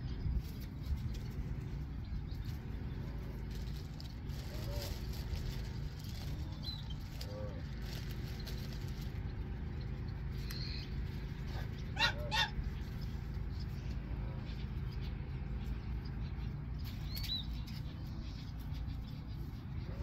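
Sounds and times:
small bird chirping: 0.0 - 20.0
steady low rumble: 0.0 - 20.0
geese honking: 11.5 - 12.7.

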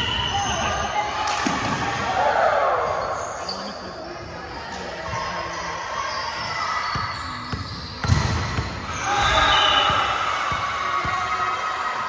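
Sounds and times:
volleyball bouncing on wooden floor: 7.0 - 11.4.

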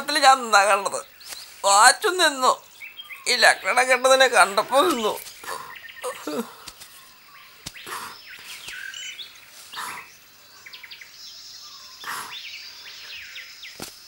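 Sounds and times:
birds whistling falling notes: 0.0 - 14.0
high insect hum: 0.0 - 14.0
rustling: 1.2 - 1.7, 4.6 - 10.0, 13.7 - 14.0.

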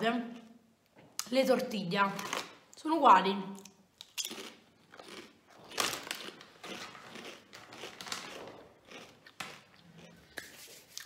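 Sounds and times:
person chewing crunchy chips: 3.6 - 11.0.

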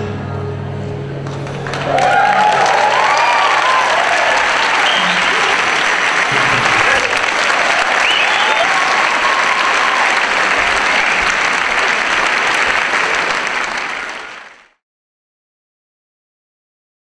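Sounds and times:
audience applauding: 1.2 - 14.8.

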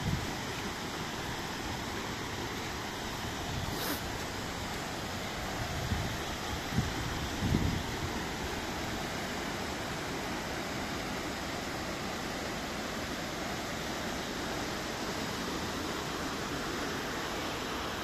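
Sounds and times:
waterfall rushing: 0.0 - 18.0.

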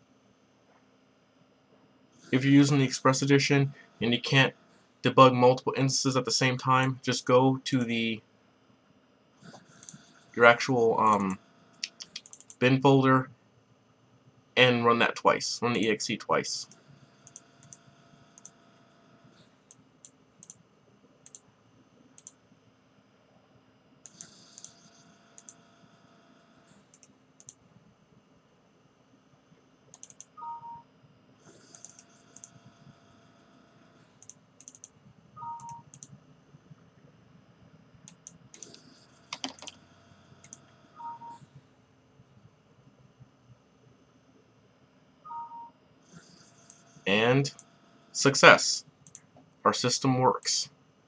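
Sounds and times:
computer mouse and keyboard clicks: 9.4 - 10.1, 11.0 - 12.6, 16.7 - 17.8, 19.4 - 20.6, 24.0 - 25.6, 26.8 - 27.6, 29.9 - 30.4, 31.5 - 32.7, 34.2 - 36.2, 38.0 - 39.8, 40.4 - 41.4.

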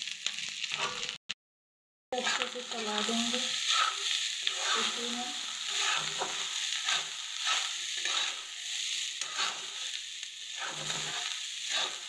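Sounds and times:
rice sizzling in a pan: 0.0 - 1.2, 2.2 - 12.0
metal spatula scraping pan: 0.7 - 1.1, 2.2 - 8.6, 9.2 - 10.0, 10.6 - 12.0.

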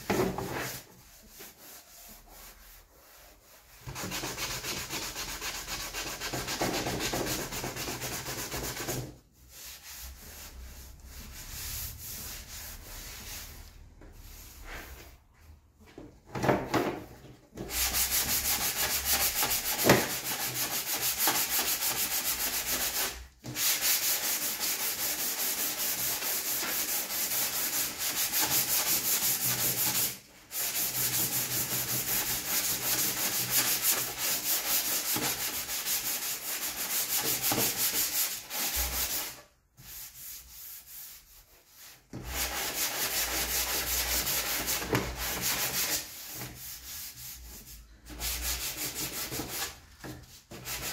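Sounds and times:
sandpaper scratching on plastic: 17.7 - 50.9.

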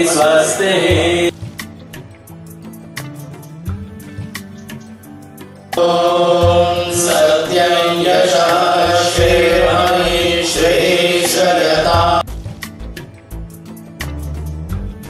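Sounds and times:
loud sustained chanting: 0.0 - 1.3, 5.8 - 12.3
low drum beat: 6.4 - 7.2, 8.5 - 10.8, 11.8 - 15.0.

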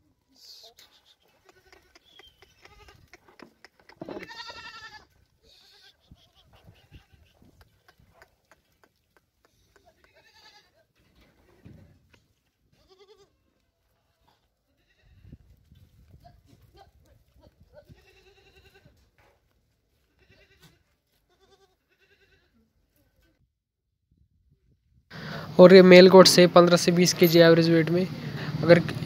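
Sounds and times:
goats bleating: 0.7 - 7.5, 9.5 - 10.8, 12.8 - 13.5, 17.8 - 19.0, 20.0 - 22.6.

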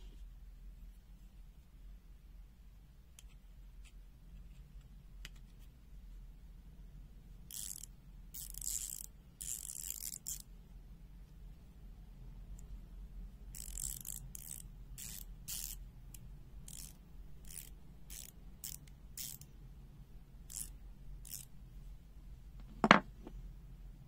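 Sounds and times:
ratchet handle clicking: 7.5 - 10.4, 13.6 - 15.8, 16.7 - 19.5, 20.5 - 20.7, 21.3 - 21.5.

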